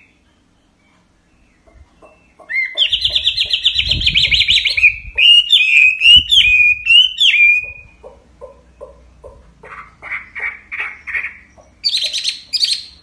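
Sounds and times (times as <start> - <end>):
bird singing whistles and trills: 0.0 - 8.0, 10.8 - 13.0.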